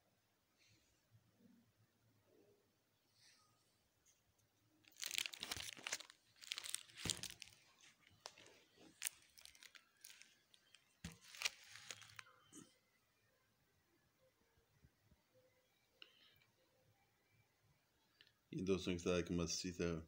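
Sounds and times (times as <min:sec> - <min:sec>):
plastic album sleeves crinkling: 0:04.8 - 0:12.3.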